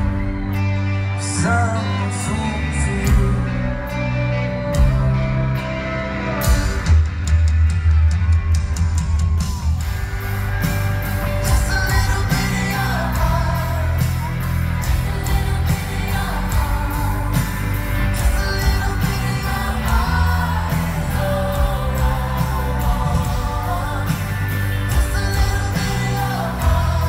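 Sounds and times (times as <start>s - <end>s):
man singing lead: 0.0s - 6.4s, 11.2s - 27.0s
live pop rock band playing: 0.0s - 27.0s
audience singing along: 9.8s - 27.0s.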